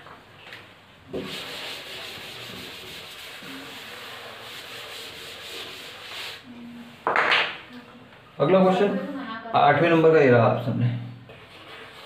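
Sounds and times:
eraser rubbing on chalkboard: 1.2s - 6.5s, 11.3s - 12.0s.

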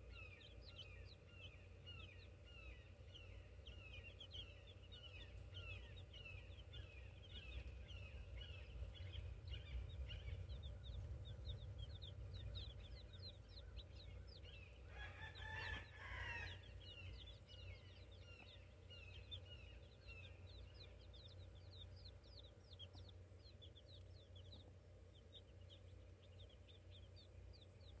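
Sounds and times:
chicks peeping: 0.0s - 28.0s.

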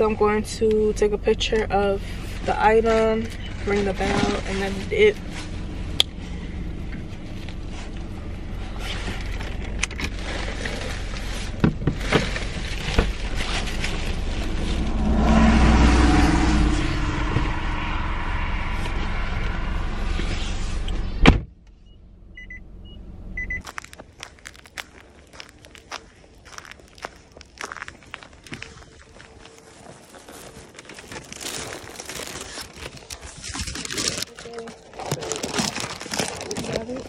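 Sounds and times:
steady low hum: 0.0s - 30.8s
footsteps on snow: 23.6s - 30.8s
bag rustling and clicks: 23.6s - 37.0s.

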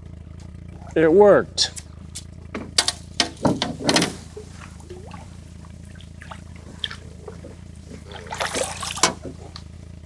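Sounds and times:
water splashing against boat: 2.8s - 9.8s
water dripping and trickling: 3.2s - 9.7s.

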